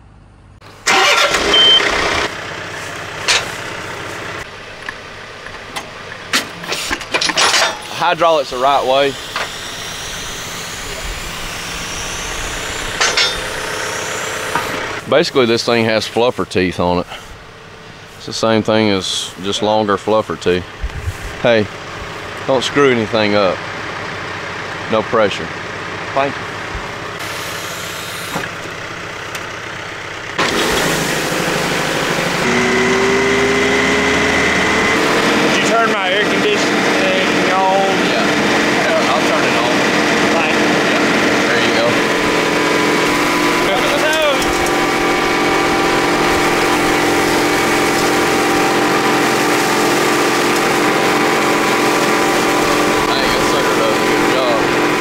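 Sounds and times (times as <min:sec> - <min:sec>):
steady shaft whine: 0:00.0 - 0:55.0
tractor engine revving: 0:00.0 - 0:55.0.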